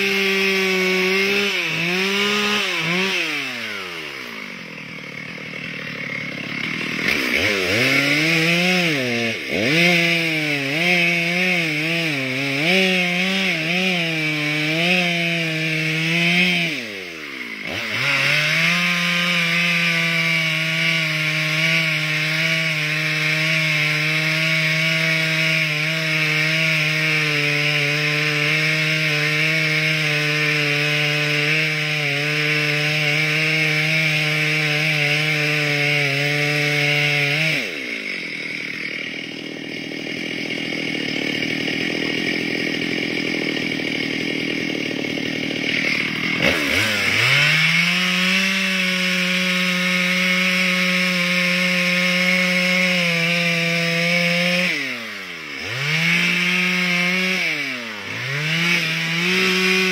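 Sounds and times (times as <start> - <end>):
chainsaw cutting a log: 0.0 - 59.9.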